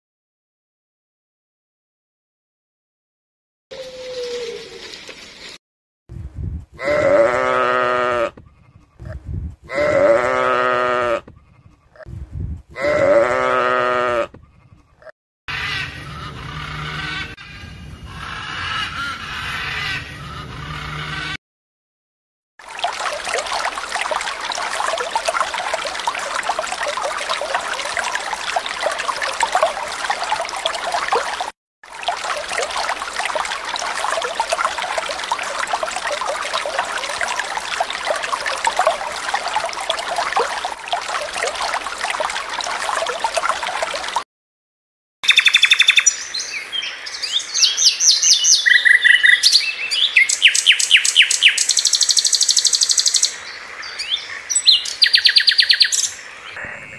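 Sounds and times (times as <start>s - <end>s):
robin singing: 45.2s - 56.6s.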